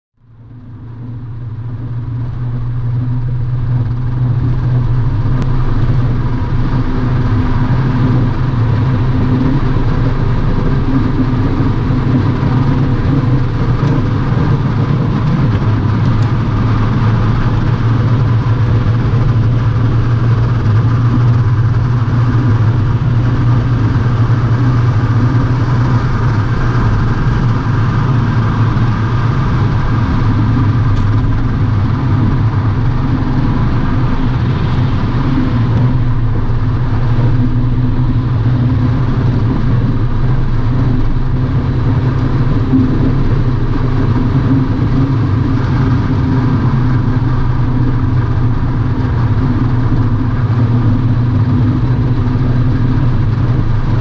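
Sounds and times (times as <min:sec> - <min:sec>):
car engine drone: 0:00.2 - 0:54.0
tyre and road noise: 0:00.2 - 0:54.0.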